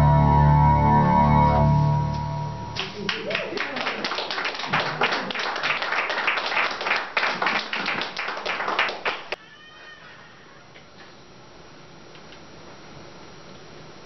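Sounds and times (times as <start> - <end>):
audience applauding: 2.8 - 9.4.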